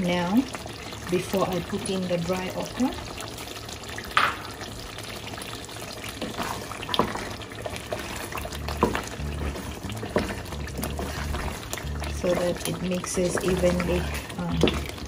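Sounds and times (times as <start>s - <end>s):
stew simmering: 0.0s - 15.0s
wooden spoon stirring: 5.4s - 15.0s.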